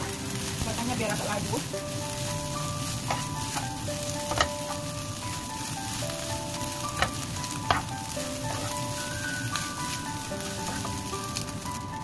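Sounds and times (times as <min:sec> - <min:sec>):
rice sizzling in a wok: 0:00.0 - 0:12.0
spatula stirring food: 0:00.0 - 0:12.0
spatula knocking on pan: 0:03.0 - 0:04.9, 0:06.7 - 0:09.0, 0:10.4 - 0:11.1.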